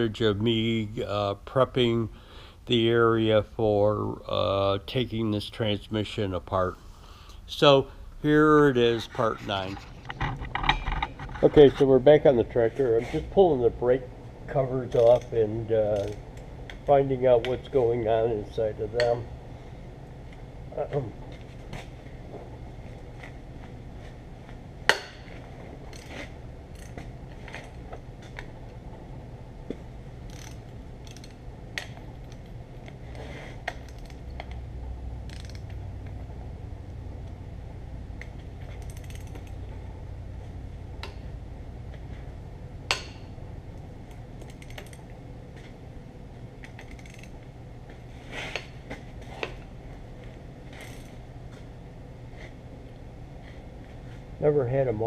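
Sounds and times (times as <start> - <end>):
ratchet wrench clicking: 15.9 - 16.2, 30.3 - 32.4, 35.3 - 35.7, 38.8 - 39.6, 46.7 - 47.3.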